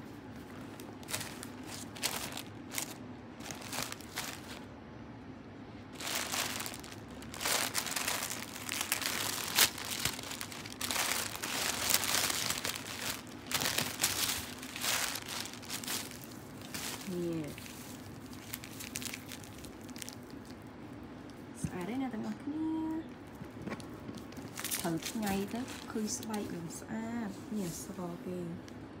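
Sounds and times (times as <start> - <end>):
paper crinkling: 0.3 - 4.7, 6.0 - 20.6, 23.3 - 26.6.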